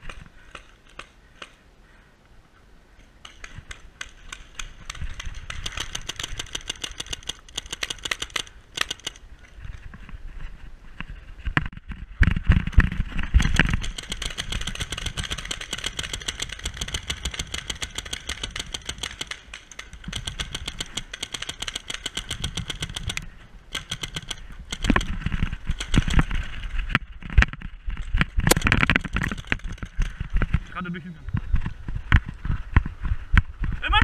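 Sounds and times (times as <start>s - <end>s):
paintball markers firing rapidly: 3.2s - 9.2s, 12.8s - 26.5s, 28.1s - 30.6s.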